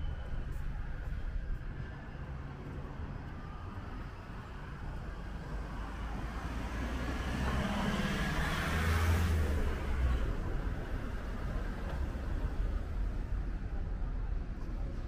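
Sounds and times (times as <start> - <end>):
low traffic rumble: 0.0 - 15.0
vehicle engine approaching: 2.6 - 13.2.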